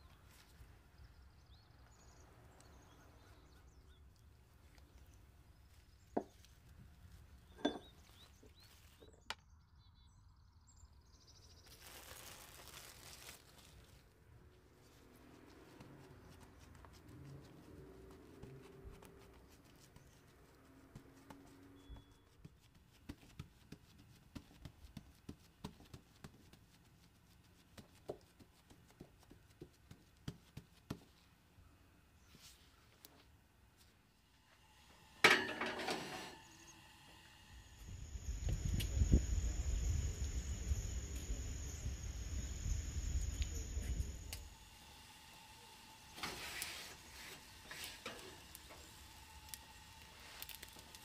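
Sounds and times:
short rustle: 11.7s - 14.2s.

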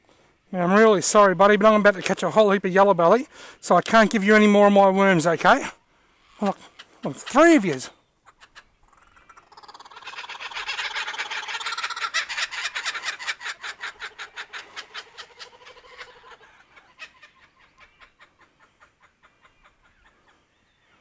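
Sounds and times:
kookaburras laughing chorus: 8.2s - 20.4s.

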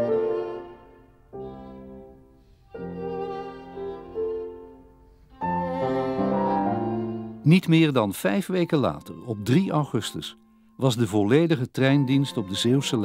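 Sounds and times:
bowed strings playing slow notes: 0.0s - 7.5s.

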